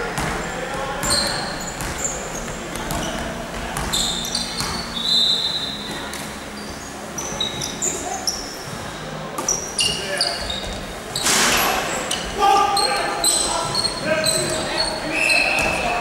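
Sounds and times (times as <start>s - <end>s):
players' voices: 0.0s - 16.0s
shoes squeaking on floor: 0.0s - 16.0s
basketball bouncing: 0.1s - 5.0s.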